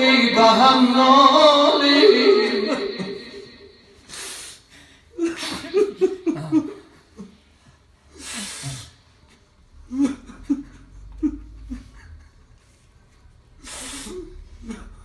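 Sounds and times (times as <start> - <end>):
man sobbing: 0.0 - 3.8, 5.1 - 7.4, 9.9 - 12.4, 14.0 - 15.0
noisy gasp of breath: 3.9 - 5.7, 8.0 - 9.1, 13.6 - 14.8.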